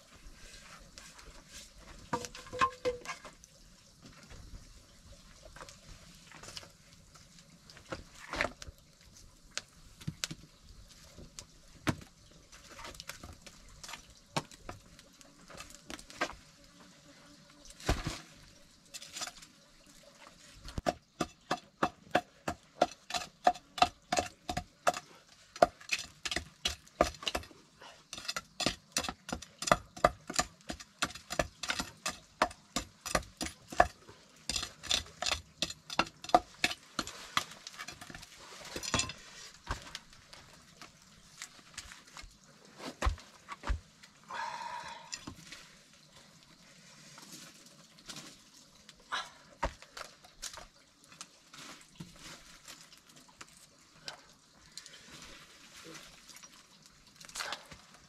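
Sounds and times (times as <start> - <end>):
knife chopping charred wood: 20.8 - 27.5, 28.1 - 38.2.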